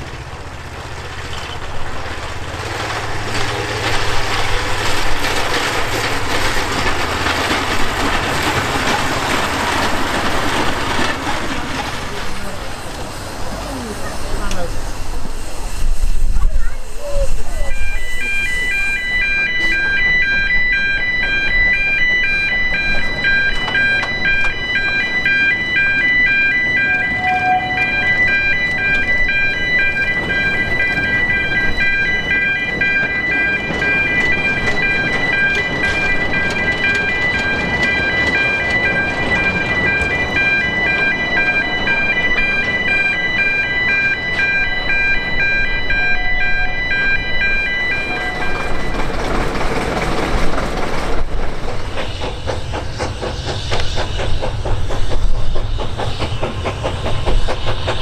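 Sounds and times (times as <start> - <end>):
train running on rails: 0.0 - 58.0
two-tone crossing alarm: 17.6 - 49.4.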